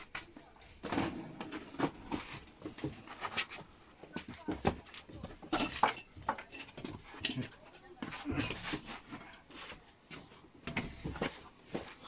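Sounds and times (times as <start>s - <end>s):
objects being bumped: 0.0s - 9.0s
footsteps and scuffs: 2.0s - 5.5s, 6.8s - 12.0s.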